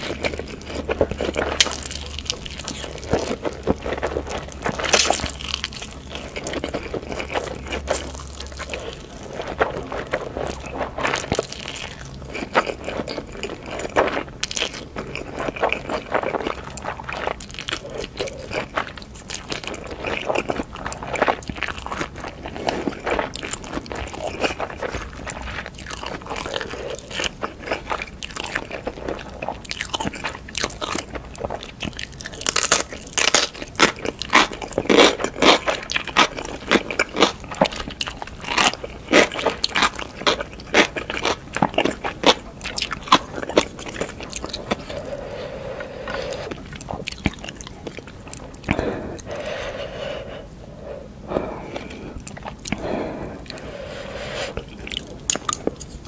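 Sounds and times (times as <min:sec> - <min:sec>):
person chewing: 0:00.0 - 0:56.0
person slurping noodles: 0:43.8 - 0:47.1, 0:48.5 - 0:55.2.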